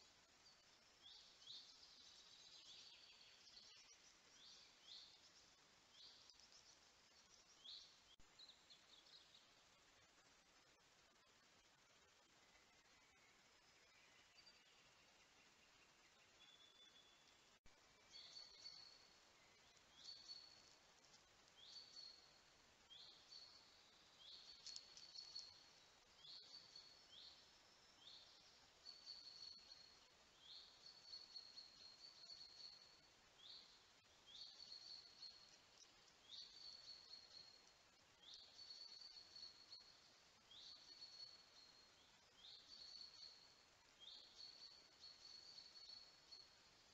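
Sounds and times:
quiet forest background: 0.0 - 46.9.

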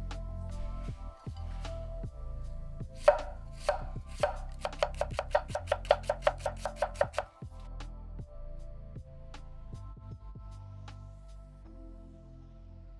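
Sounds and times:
knife slicing onion on wooden board: 3.0 - 7.3.

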